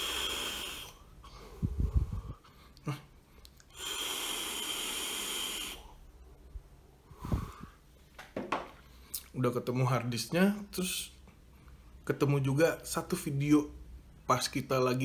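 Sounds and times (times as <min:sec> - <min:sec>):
e-cigarette draw hiss: 0:00.0 - 0:01.0, 0:03.7 - 0:05.9.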